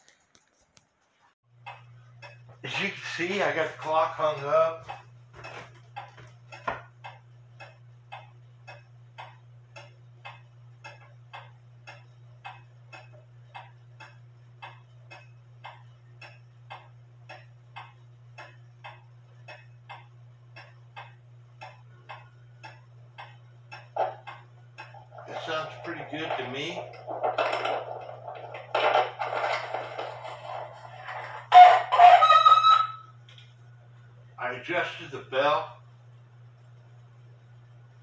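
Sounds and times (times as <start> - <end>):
clock ticking: 1.6 - 31.9.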